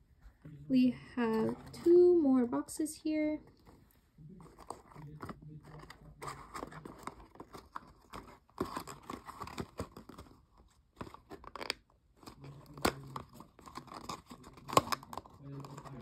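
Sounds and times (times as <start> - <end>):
cardboard box crinkling and tearing: 4.4 - 16.0.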